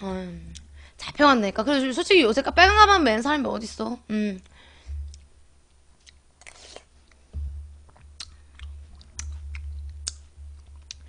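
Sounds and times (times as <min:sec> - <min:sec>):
pulsing low rumble: 0:04.8 - 0:05.6, 0:07.3 - 0:11.0
wet mouth clicks: 0:07.9 - 0:10.3.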